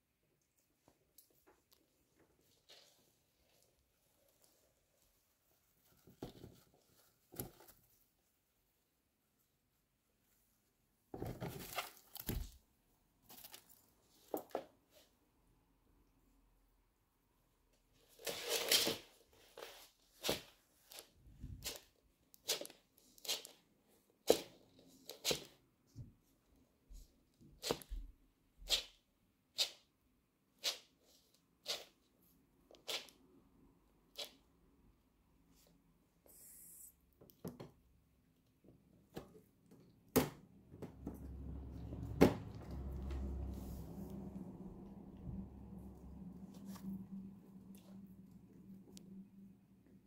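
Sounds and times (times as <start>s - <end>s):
low steady rumble: 40.8s - 50.0s.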